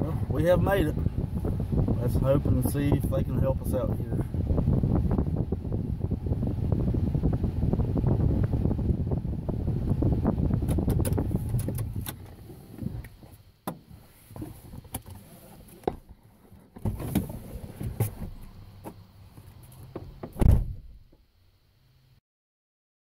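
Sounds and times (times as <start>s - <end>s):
low rumble inside truck cab: 0.0s - 22.2s
truck door shutting: 10.6s - 19.0s, 19.8s - 21.2s.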